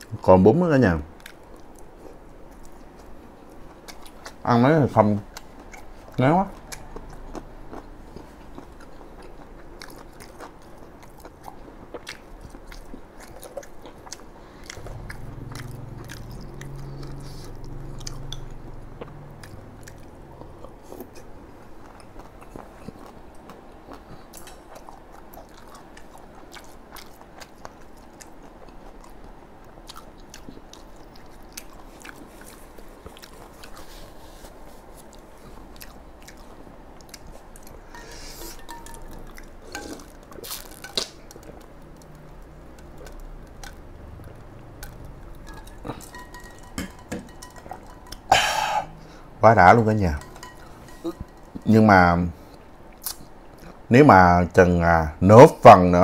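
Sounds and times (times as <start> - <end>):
close chewing with mouth clicks: 1.2 - 4.5, 5.2 - 48.3
low hum: 14.6 - 22.8.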